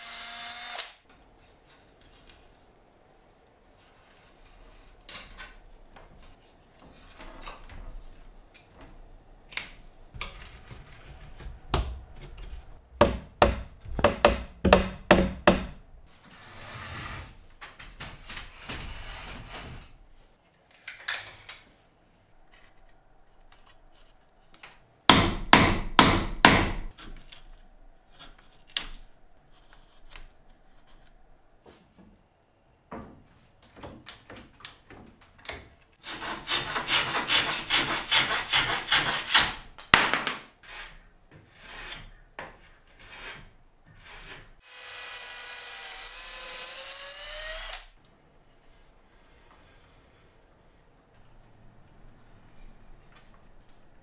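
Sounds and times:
mallet striking wood chisel: 0:13.0 - 0:15.8, 0:25.1 - 0:26.9
chisel scraping wood: 0:40.6 - 0:44.5.

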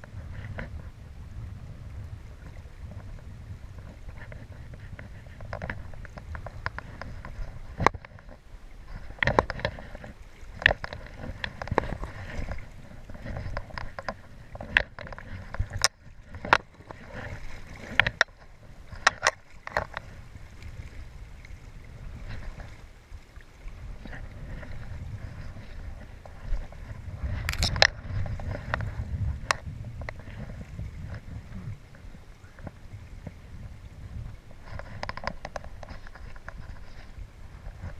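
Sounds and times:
fishing rod clicks and scrapes: 0:00.0 - 0:00.8, 0:02.8 - 0:20.2, 0:24.0 - 0:31.4, 0:34.2 - 0:37.9
low wind rumble: 0:00.0 - 0:37.9.

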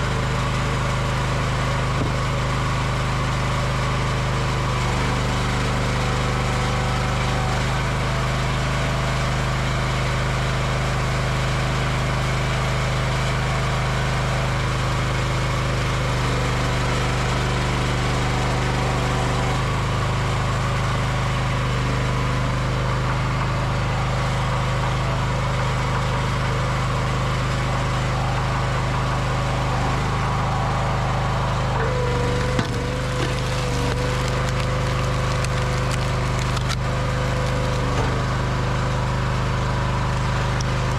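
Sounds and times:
log splitter engine running: 0:00.0 - 0:40.9
wood cracking as it splits: 0:28.7 - 0:40.9.

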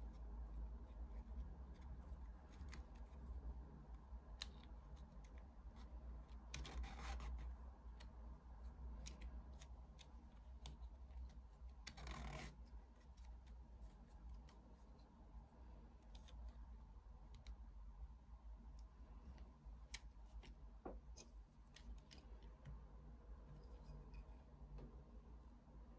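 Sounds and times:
faint low hum: 0:00.0 - 0:25.9
strand rasping through weave: 0:04.4 - 0:15.2.

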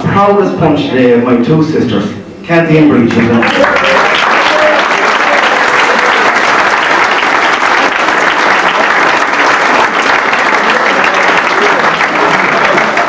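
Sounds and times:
crowd applauding: 0:03.1 - 0:13.0.

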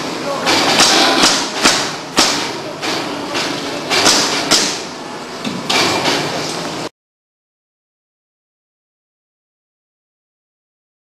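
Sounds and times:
workshop noise: 0:00.0 - 0:06.9.

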